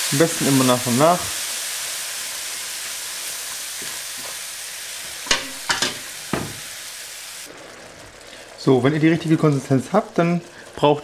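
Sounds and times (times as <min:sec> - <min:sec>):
food sizzling in frying pan: 0:00.0 - 0:11.0
wooden spoon knocking pan: 0:05.2 - 0:06.6.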